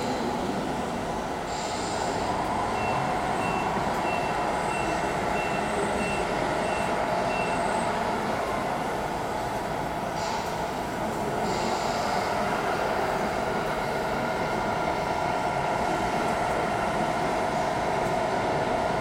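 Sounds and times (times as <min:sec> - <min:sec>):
short high backup beeps: 0:02.7 - 0:08.0.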